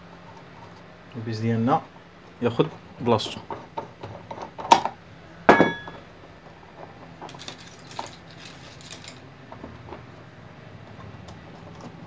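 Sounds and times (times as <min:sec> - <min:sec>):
sharp metallic clink: 0:05.5 - 0:06.0
small metal parts rattling: 0:06.8 - 0:09.3.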